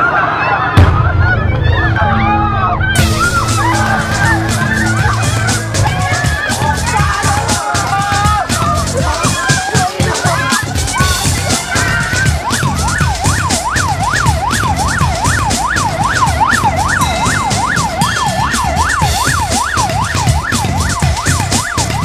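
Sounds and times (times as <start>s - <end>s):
low pulsing background music: 0.8s - 22.0s
police siren yelp: 2.0s - 22.0s.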